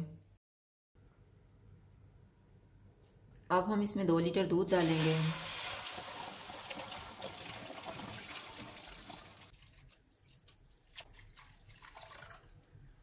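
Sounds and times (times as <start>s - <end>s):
milk hissing in hot pan: 4.8s - 8.8s.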